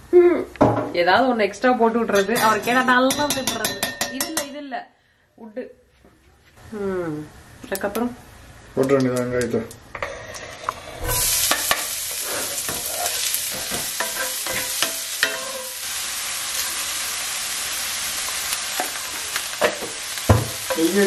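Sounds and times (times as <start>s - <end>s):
onion sizzling in oil: 9.9s - 21.0s
wooden spatula scraping a pan: 10.0s - 15.7s.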